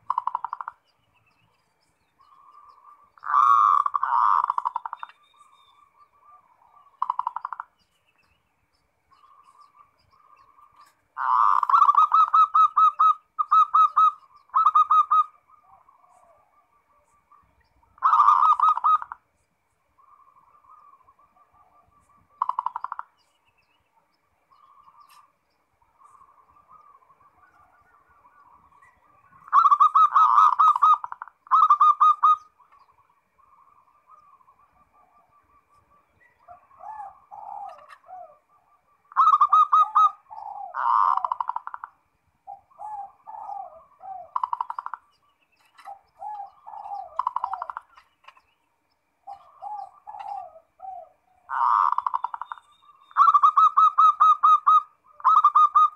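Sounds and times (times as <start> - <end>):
dove cooing: 0.0 - 0.8, 2.2 - 7.8, 9.2 - 19.3, 20.0 - 23.2, 24.5 - 48.4, 49.2 - 55.9.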